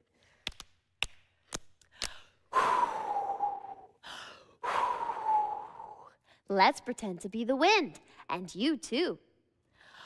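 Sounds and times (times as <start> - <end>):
woman blowing breathy whoo: 2.5 - 6.2.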